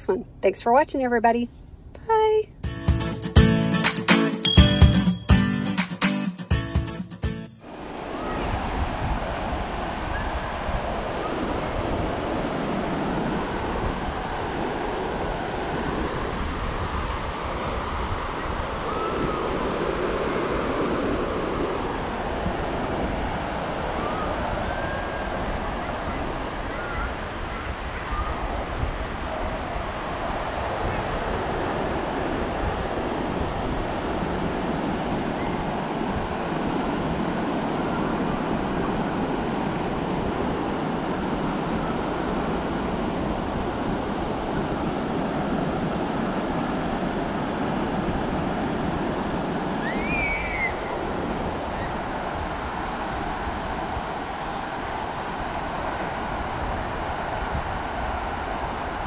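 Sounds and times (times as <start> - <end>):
ocean surf on sandy beach: 7.5 - 59.0
wind rumbling on microphone: 7.6 - 59.0
brief high cry: 49.8 - 50.9.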